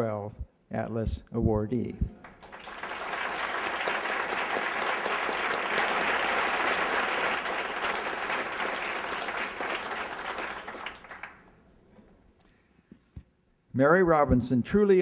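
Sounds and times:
audience applauding: 2.2 - 11.5.

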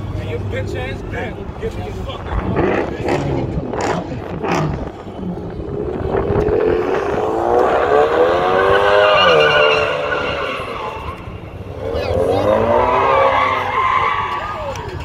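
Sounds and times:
car engine revving: 1.5 - 14.5
tyres squealing: 8.7 - 11.5.

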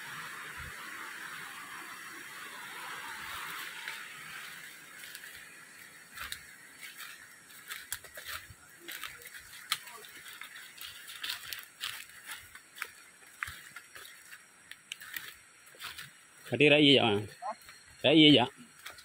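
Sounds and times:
steady hiss: 0.0 - 19.0
footsteps crunching on dry leaves: 3.0 - 19.0
twigs snapping: 7.7 - 16.0.

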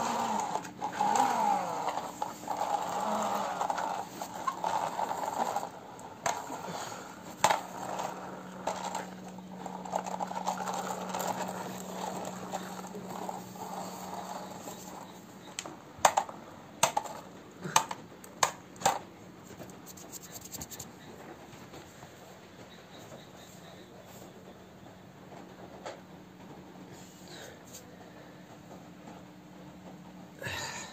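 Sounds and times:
toy vehicles rolling on hard floor: 0.0 - 21.2.

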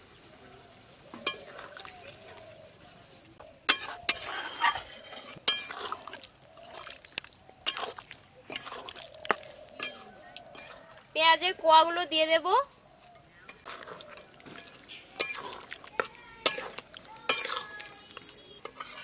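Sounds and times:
metal spatula scraping a pan: 1.1 - 1.8, 3.6 - 6.8, 7.6 - 11.0, 13.5 - 19.0
gravy sloshing: 3.7 - 11.2, 13.5 - 19.0.

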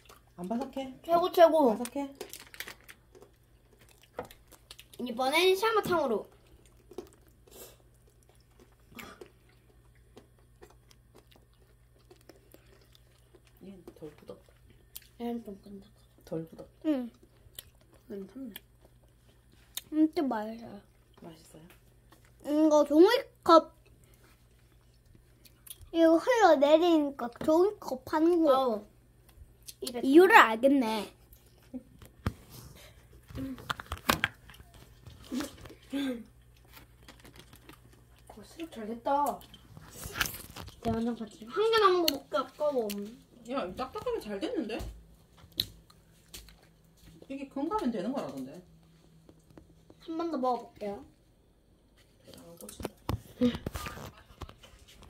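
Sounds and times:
sugar shell crunching: 1.7 - 5.0, 33.0 - 38.5, 39.2 - 43.1.

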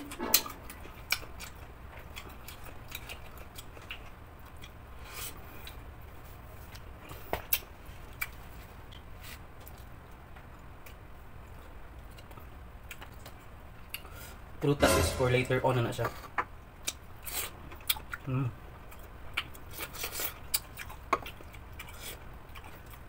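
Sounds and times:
steady low hum: 0.0 - 17.2
chewing: 0.2 - 5.8, 6.6 - 14.1, 16.8 - 18.3, 18.9 - 23.0.

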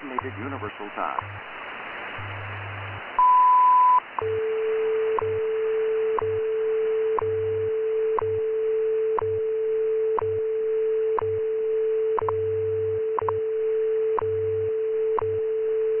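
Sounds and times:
steady radio tone: 0.0 - 1.6
pulsing low hum: 1.2 - 16.0.

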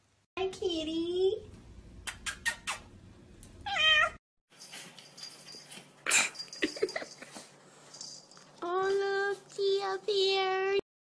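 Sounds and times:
cat meowing: 3.6 - 4.2.

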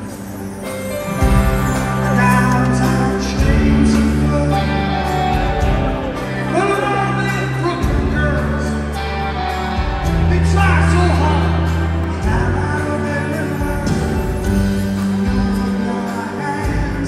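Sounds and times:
drums: 0.0 - 17.0
man singing: 1.7 - 5.4, 12.1 - 17.0.

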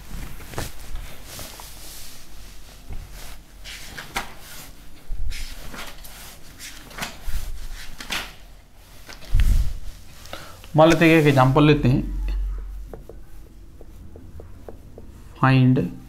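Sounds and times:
soft low thumps: 10.9 - 15.4.

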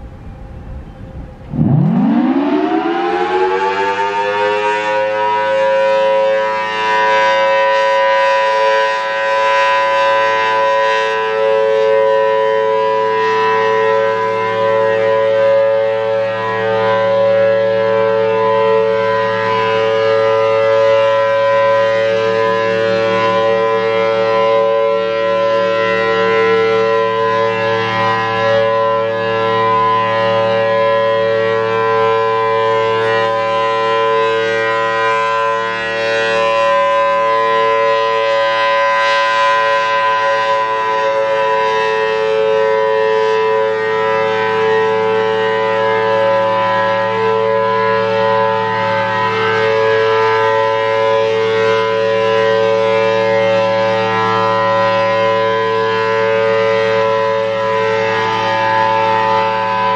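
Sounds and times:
two-tone warning siren: 0.0 - 59.9.

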